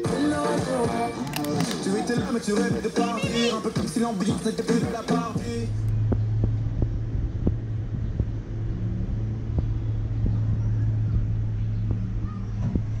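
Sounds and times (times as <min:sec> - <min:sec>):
vehicle engine humming: 0:03.8 - 0:13.0.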